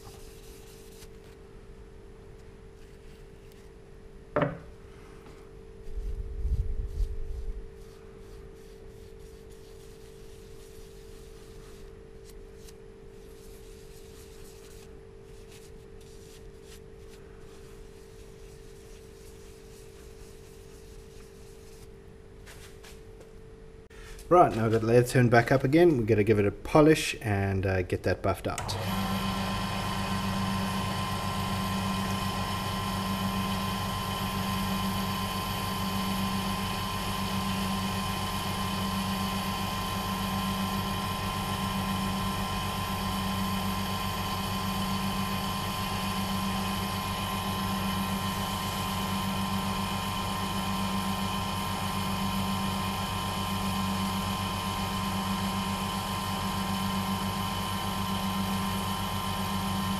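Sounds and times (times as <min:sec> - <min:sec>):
wood lathe motor hum: 0:28.6 - 0:59.9.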